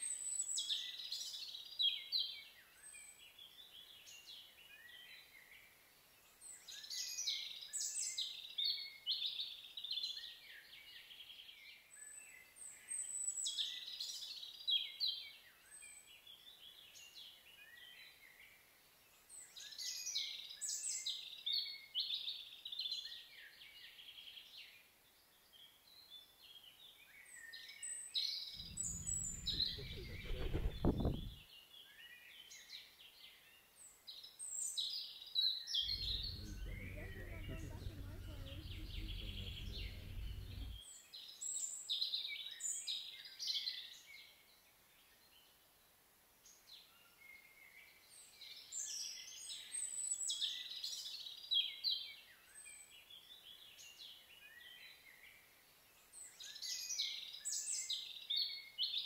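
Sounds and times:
low rumble: 28.6 - 31.4, 35.9 - 40.8
songbirds chirping: 28.6 - 31.4, 35.8 - 41.1.

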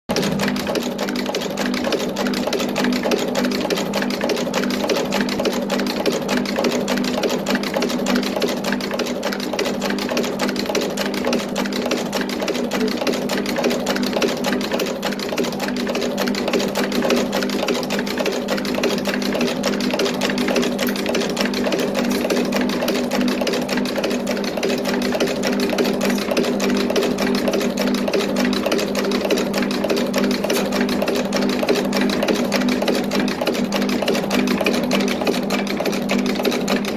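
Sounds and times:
machine clattering rapidly: 0.1 - 36.9.

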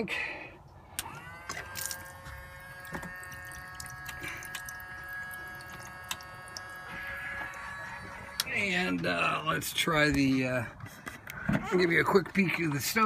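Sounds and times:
electric pump whining: 0.7 - 12.2
water flowing into sink: 1.5 - 7.9.

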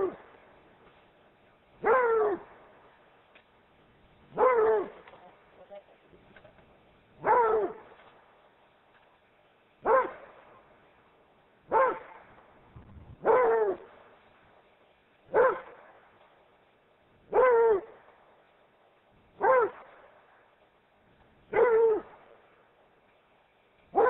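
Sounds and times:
dog barking: 1.8 - 2.5, 4.3 - 5.0, 7.2 - 7.9, 9.8 - 10.4, 11.7 - 12.3, 13.2 - 13.9, 15.3 - 15.8, 17.3 - 18.0, 19.4 - 20.0, 21.5 - 22.2.

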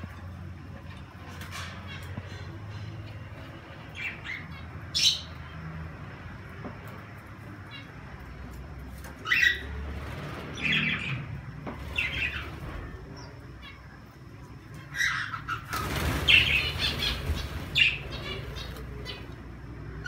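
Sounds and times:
birds squawking and chirping: 0.0 - 5.7, 7.4 - 20.0
wings flapping: 15.5 - 19.2.

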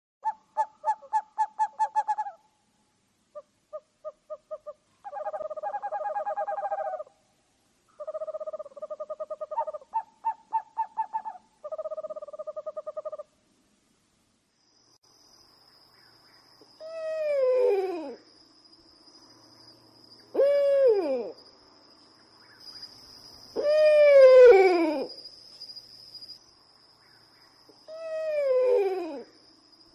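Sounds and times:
owl trilling calls: 0.2 - 2.4, 3.3 - 7.2, 7.9 - 13.3.

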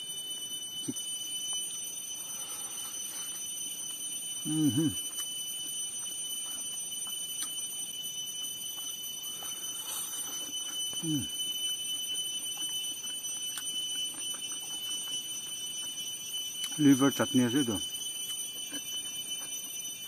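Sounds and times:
high-pitched insect drone: 0.0 - 20.0
man chewing and lip-smacking: 0.7 - 1.7, 3.7 - 7.8, 10.3 - 16.8, 18.0 - 19.8
man humming low mm: 4.5 - 5.0, 11.0 - 11.3.

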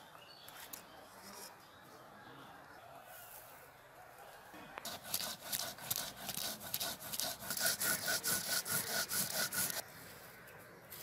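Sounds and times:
stone roller scraping on grinding stone: 4.9 - 9.8.

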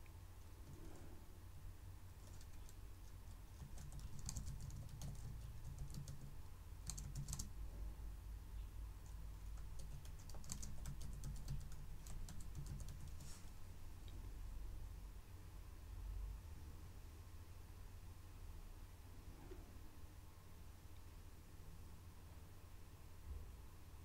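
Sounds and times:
low steady hum: 0.0 - 24.0
typing on keyboard: 2.2 - 7.5, 9.4 - 13.3.

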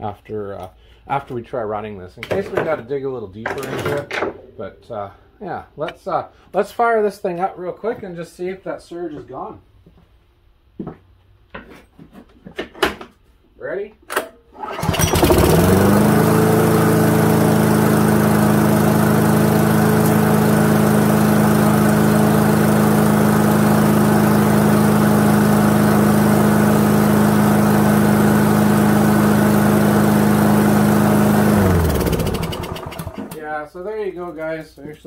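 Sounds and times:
lawnmower engine running: 14.6 - 33.4.

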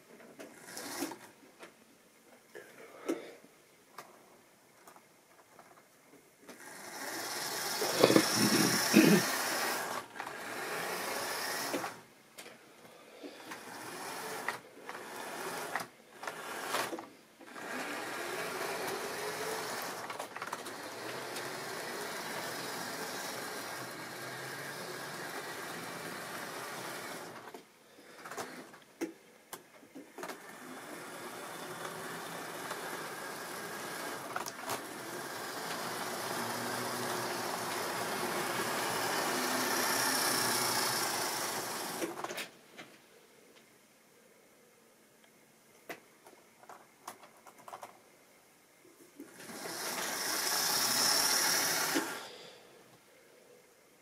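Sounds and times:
model train motor whirring: 0.4 - 1.3, 6.5 - 12.1, 13.4 - 28.8, 30.2 - 42.5, 49.2 - 52.6
wheels rattling over rail joints: 30.2 - 42.4.

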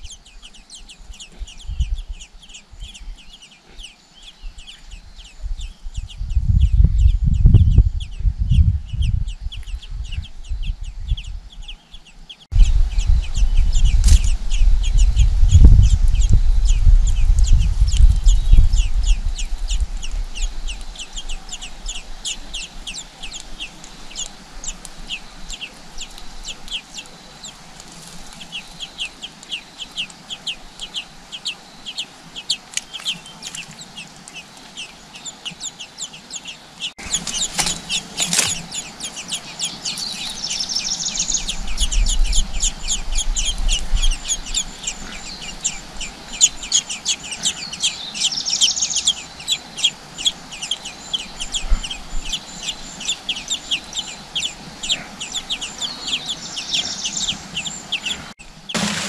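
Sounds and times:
nestling birds begging chirps: 0.0 - 59.0.

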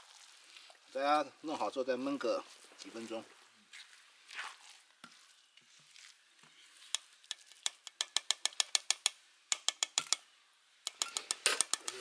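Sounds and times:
metal spoon scraping rice in pan: 5.0 - 9.0, 10.9 - 12.0
spoon clicking against pan: 6.9 - 10.2, 10.8 - 12.0.

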